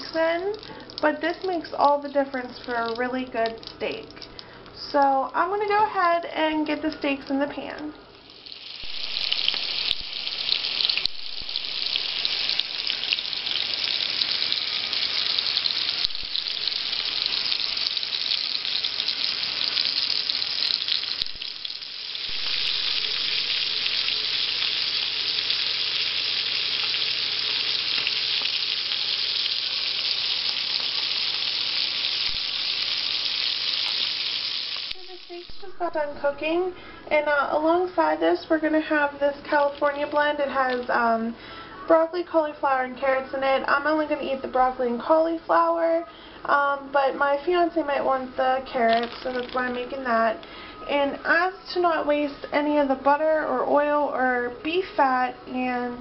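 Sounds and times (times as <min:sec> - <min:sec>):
steaks sizzling: 0:08.2 - 0:36.2.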